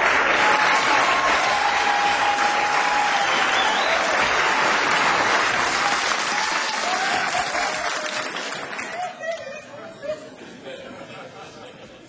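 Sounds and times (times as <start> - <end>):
audience applauding: 0.0 - 9.5.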